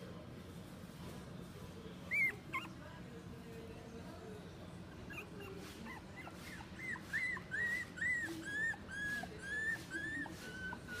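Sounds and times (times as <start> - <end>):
puppy whining: 2.1 - 2.9, 4.8 - 11.0.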